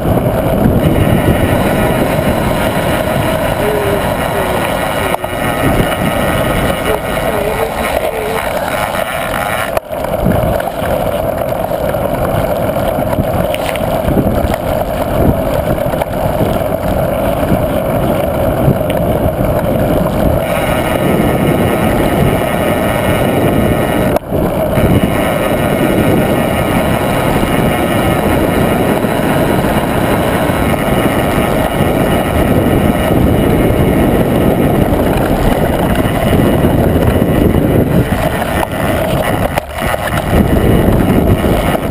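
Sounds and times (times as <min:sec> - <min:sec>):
bike tyre rumble on road: 0:00.0 - 0:41.9
wind buffeting microphone: 0:00.0 - 0:41.9.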